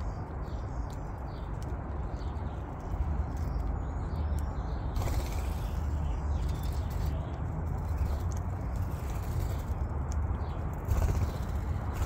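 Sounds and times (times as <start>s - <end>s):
steady low rumble: 0.0s - 12.0s
starlings chirping and whistling: 3.4s - 7.4s.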